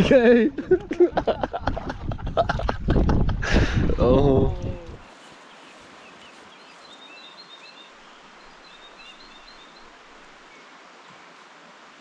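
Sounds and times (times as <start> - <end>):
small birds chirping: 4.5 - 11.4
river flowing hiss: 4.6 - 12.0.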